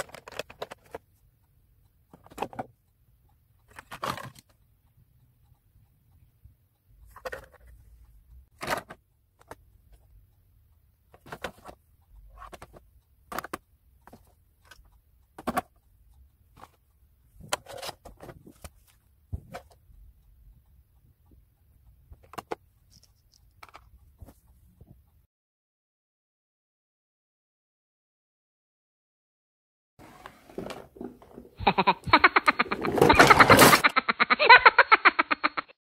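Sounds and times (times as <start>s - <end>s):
plastic cases clicking and clattering: 0.0s - 1.0s, 3.7s - 4.5s, 8.6s - 9.6s, 11.1s - 14.3s, 15.4s - 15.7s.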